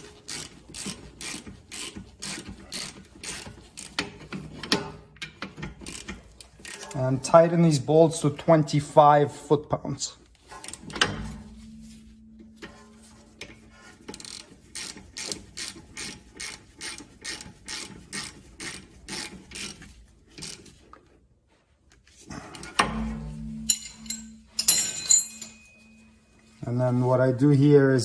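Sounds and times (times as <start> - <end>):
ratchet clicking: 0.0 - 7.0, 13.4 - 20.8
metal clunk and rattle: 3.9 - 7.0, 10.5 - 14.2, 22.4 - 25.9.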